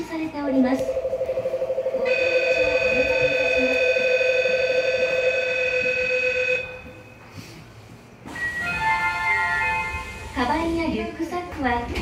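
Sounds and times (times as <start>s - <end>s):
electronic departure bell: 0.8s - 7.2s.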